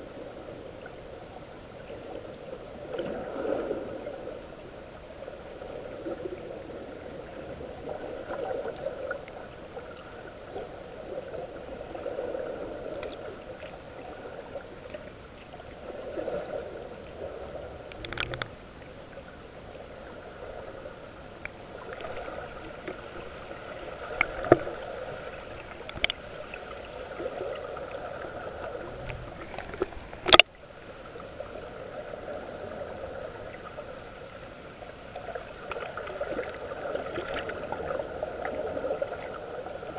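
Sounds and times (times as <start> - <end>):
muffled underwater sea wash: 0.0 - 39.9
sharp clicks or knocks: 17.9 - 18.5.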